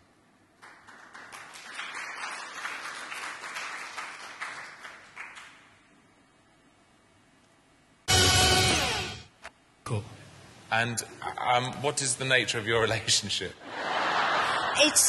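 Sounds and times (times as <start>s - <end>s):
audience applauding: 0.6s - 5.8s.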